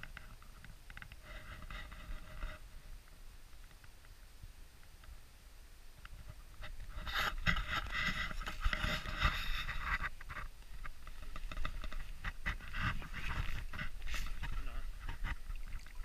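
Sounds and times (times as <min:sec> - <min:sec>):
wind rumble on microphone: 0:06.0 - 0:16.0
footsteps crunching on snow: 0:11.1 - 0:15.4.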